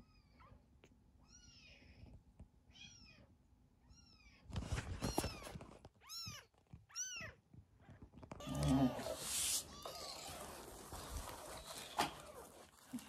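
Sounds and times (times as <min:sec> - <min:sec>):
kittens mewing: 0:08.4 - 0:13.0.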